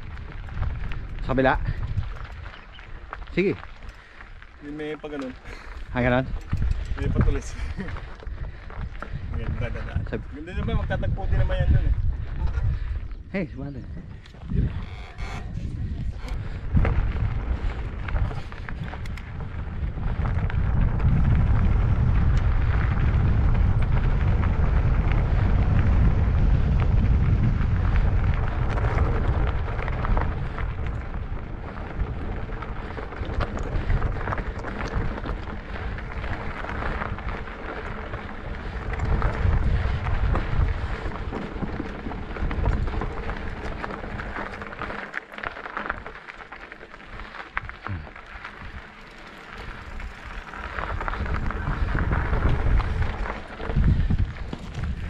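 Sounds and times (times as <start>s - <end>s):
bike knocking over rough ground: 0.0s - 4.5s, 14.4s - 55.0s
bike tyre noise: 0.0s - 55.0s
wind buffeting microphone: 0.0s - 55.0s.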